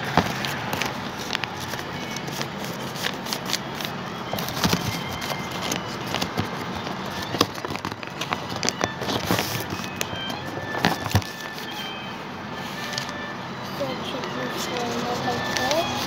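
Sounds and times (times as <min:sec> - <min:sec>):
paper rustling and crinkling: 0:00.0 - 0:16.0.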